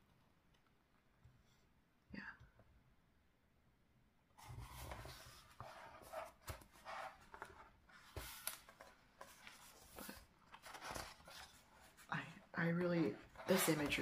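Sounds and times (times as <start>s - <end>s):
page turning: 4.4s - 12.1s
paper rustling: 4.4s - 14.0s.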